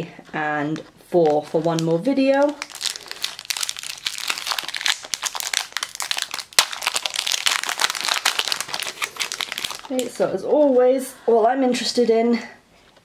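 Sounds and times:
foil wrapper crinkling and tearing: 1.2 - 10.1.

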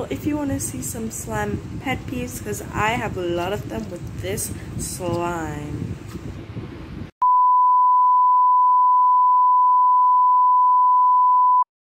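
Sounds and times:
steady test tone beep: 7.2 - 11.7.

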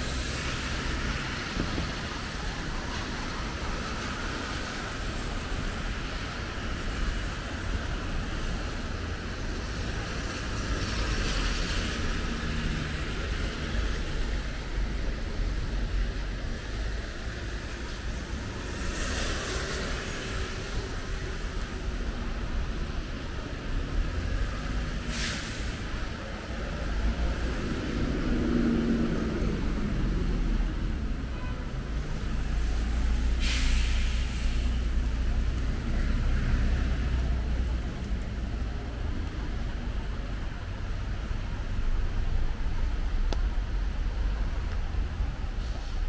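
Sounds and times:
traffic rumble on wet pavement: 0.0 - 46.0
tyre hiss on wet road: 3.5 - 22.2, 24.1 - 31.0, 31.8 - 38.2, 43.4 - 46.0
short sharp hisses: 25.1 - 25.8, 33.3 - 34.8.

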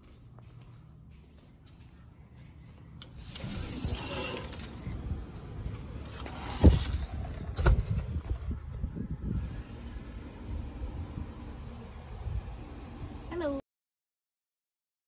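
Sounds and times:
sliding glass door rumbling: 3.2 - 5.0, 5.8 - 8.8.

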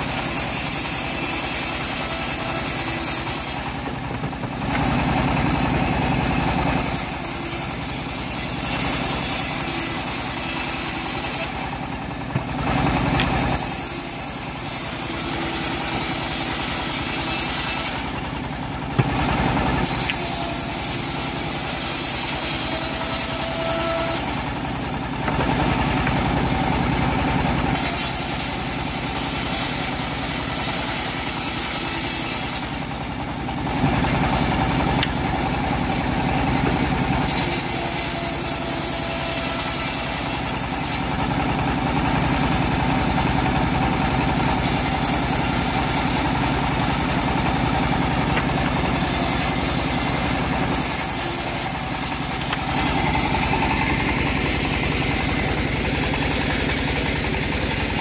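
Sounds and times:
saw hissing through wood: 0.0 - 3.8, 5.6 - 11.9, 12.8 - 18.4, 19.0 - 33.0, 35.7 - 42.5, 43.1 - 57.9
bandsaw mill engine drone: 0.0 - 58.0.

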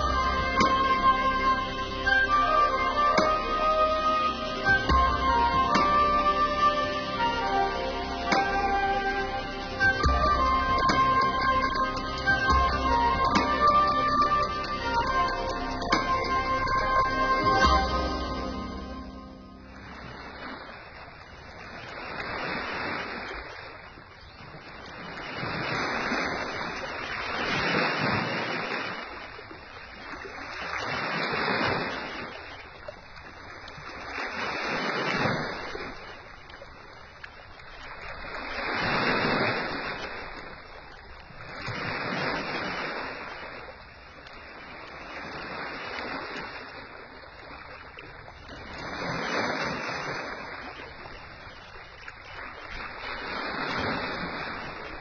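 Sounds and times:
sea waves washing in: 0.0 - 55.0.

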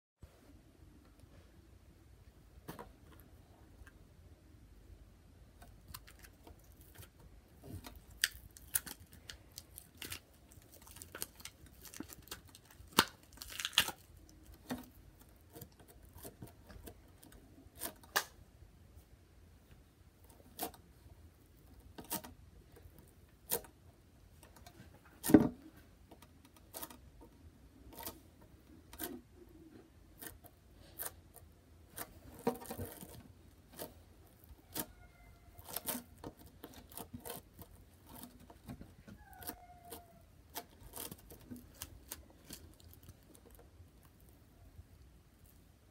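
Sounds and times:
slime crackling and popping: 5.6 - 18.4, 39.4 - 44.4.

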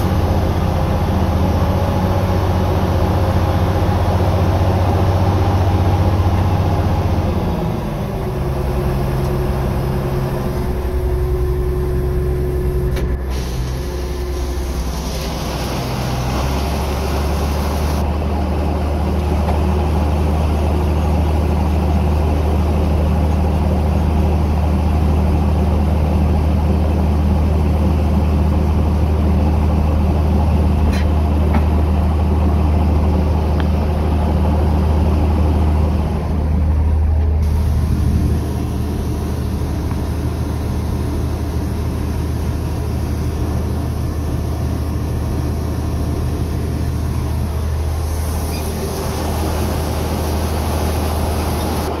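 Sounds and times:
engine humming: 0.0 - 52.0
grain pouring hiss: 13.2 - 18.0, 37.4 - 44.0, 47.2 - 51.9.

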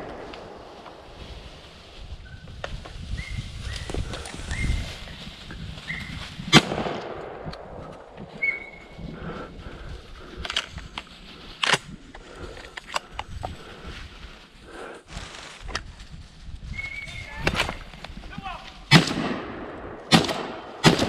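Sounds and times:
light sharp cracks: 0.0 - 1.2
loud gunshot: 6.5 - 7.4, 18.9 - 21.0.

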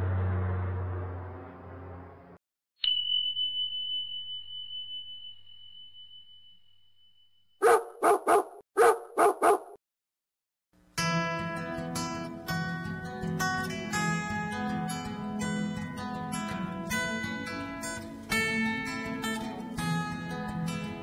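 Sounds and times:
bell-like ding: 2.8 - 7.6
dog barking: 7.6 - 9.8.

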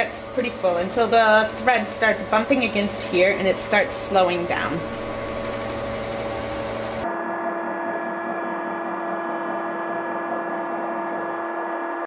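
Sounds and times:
sewing machine whirring: 0.0 - 7.0.

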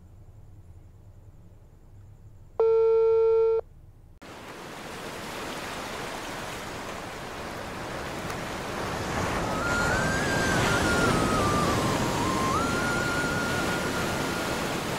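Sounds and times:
wind: 0.0 - 14.9
telephone beep: 2.6 - 3.6
surf: 4.2 - 14.9.

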